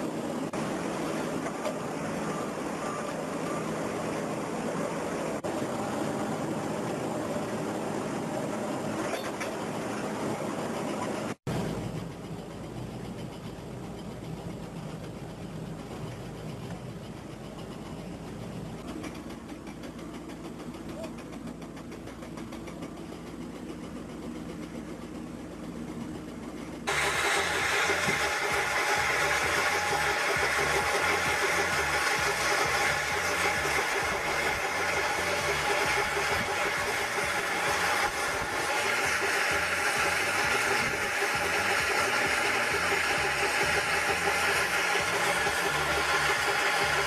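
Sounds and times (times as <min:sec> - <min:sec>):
faint short beeps: 0:02.1 - 0:03.8
stone saw machine hum: 0:26.9 - 0:47.0.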